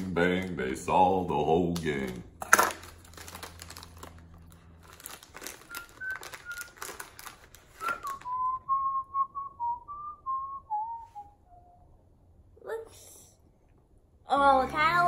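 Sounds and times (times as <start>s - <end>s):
plastic wrapper crinkling: 1.7s - 8.6s
man whistling: 5.7s - 6.9s, 7.8s - 11.9s.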